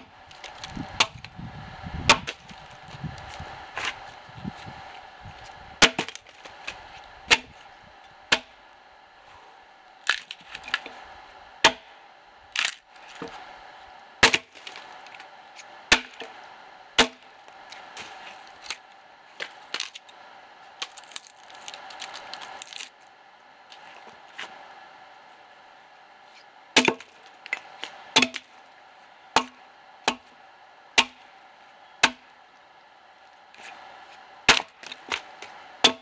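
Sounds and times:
axe chopping log: 2.1 - 2.4, 5.8 - 7.6, 8.3 - 8.6, 11.6 - 11.9, 14.2 - 14.6, 15.9 - 16.3, 17.0 - 17.2, 26.8 - 28.5, 29.4 - 30.2, 31.0 - 31.2, 32.0 - 32.2, 34.5 - 36.0
wood cracking: 10.0 - 10.8, 12.6 - 12.8, 20.8 - 22.9.

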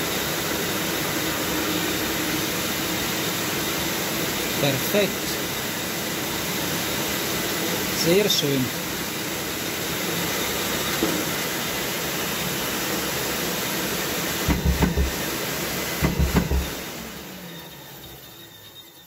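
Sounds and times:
low thumps: 14.5 - 15.2.

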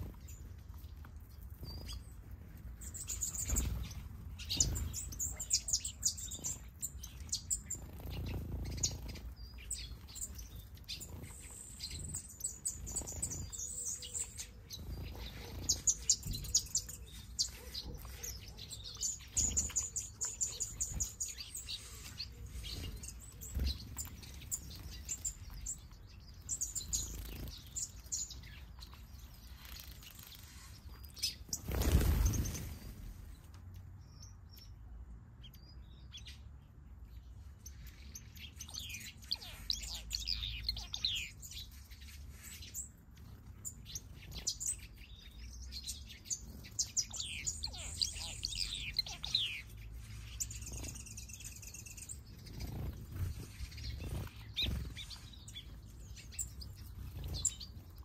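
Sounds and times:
finches chirping and twittering: 0.0 - 58.0
wingbeats of birds taking off: 31.5 - 33.2.

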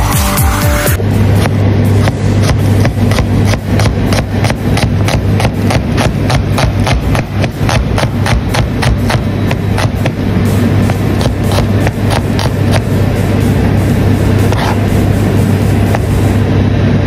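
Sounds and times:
low hum: 1.0 - 17.0.

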